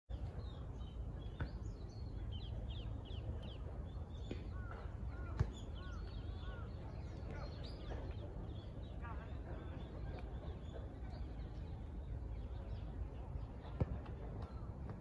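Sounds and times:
small birds chirping: 0.1s - 15.0s.

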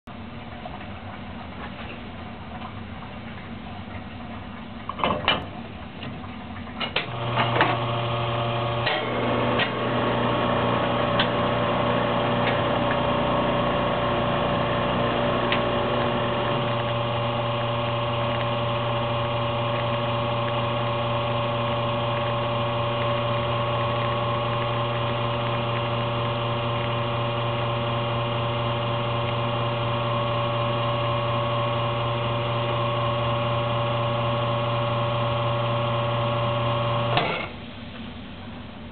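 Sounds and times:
espresso machine pump humming: 7.0s - 37.6s.

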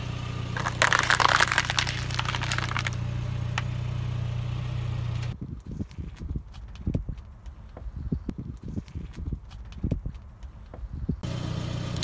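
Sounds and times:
car engine running: 0.0s - 6.4s, 10.5s - 12.0s
plastic packaging cracking under tyre: 0.6s - 3.0s.

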